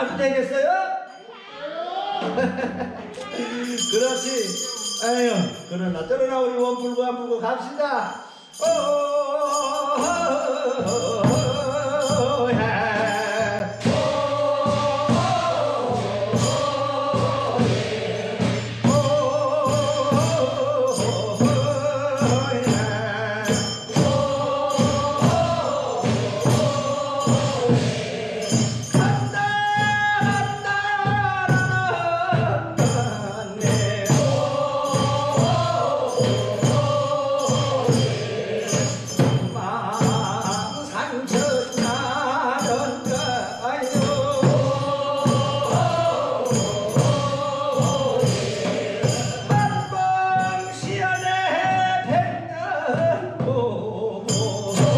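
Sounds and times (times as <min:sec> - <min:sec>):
high jingling beat: 0:02.2 - 0:54.9
male chorus singing: 0:08.6 - 0:54.9
solo male voice singing: 0:08.6 - 0:54.9.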